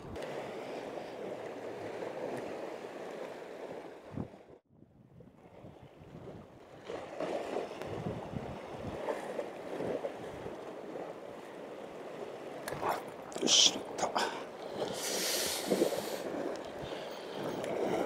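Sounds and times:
wind on microphone: 0:04.0 - 0:11.1
sea waves washing against rocks: 0:06.4 - 0:18.0.

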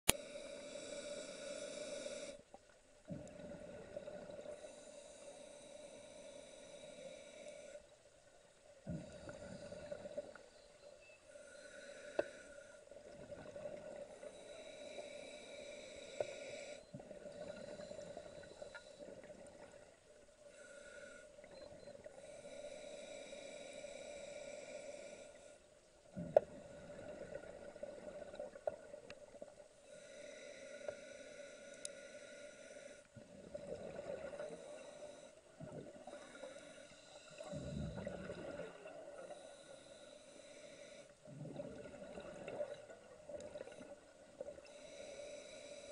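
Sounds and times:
diver breathing underwater: 0:00.1 - 0:08.0, 0:08.8 - 0:19.9, 0:20.5 - 0:45.9.

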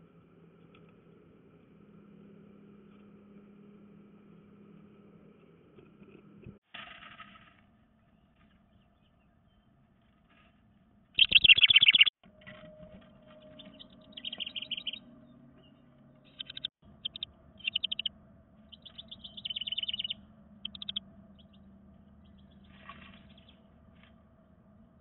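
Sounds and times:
wren singing bubbling trill: 0:11.2 - 0:12.1, 0:13.6 - 0:15.0, 0:16.3 - 0:18.1, 0:18.7 - 0:21.0.

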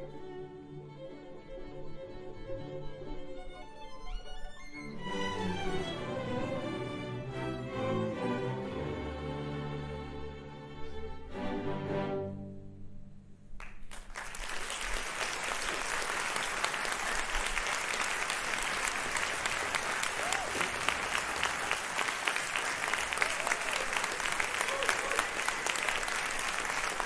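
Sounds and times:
audience applauding: 0:13.6 - 0:27.0.

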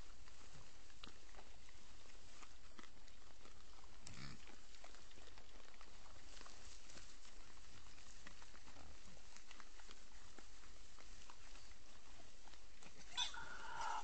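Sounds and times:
hogs grunting and rooting: 0:00.0 - 0:14.0
hog call: 0:13.0 - 0:14.0.

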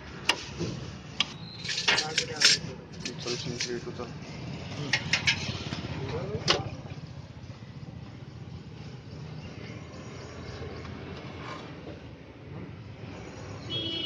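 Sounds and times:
low traffic rumble: 0:00.0 - 0:14.0.

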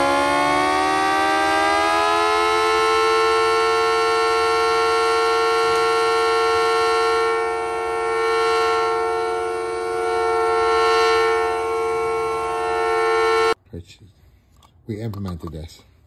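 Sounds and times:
rotating siren wailing: 0:00.0 - 0:13.6.

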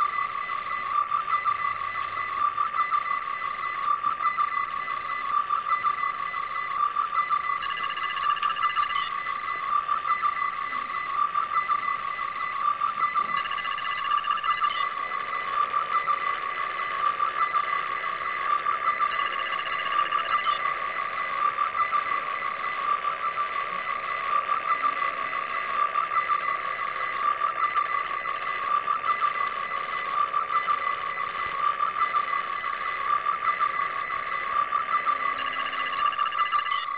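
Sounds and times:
high electronic chirps: 0:00.0 - 0:36.9
warbling electronic tone: 0:07.6 - 0:25.8.

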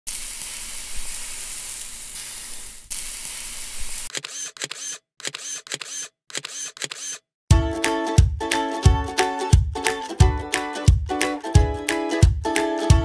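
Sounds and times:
camera shutter clicks with winding: 0:04.0 - 0:07.2.

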